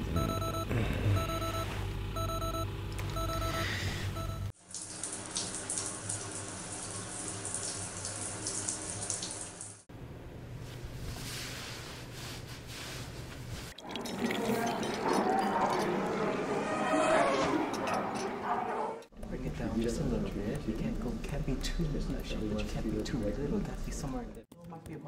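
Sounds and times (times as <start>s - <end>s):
digital alarm clock beeping: 0.2s - 4.5s
shower spraying: 4.6s - 9.9s
water running from tap: 4.6s - 9.9s.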